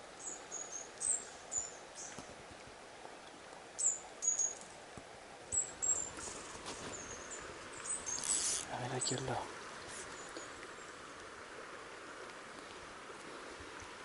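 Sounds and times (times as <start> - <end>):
river rushing: 0.0 - 14.0
small birds chirping: 5.5 - 9.4.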